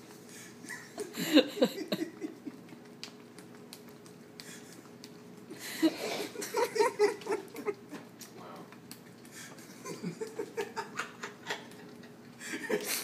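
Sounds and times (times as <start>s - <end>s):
dog licking and slurping: 2.0s - 5.6s, 6.3s - 10.5s.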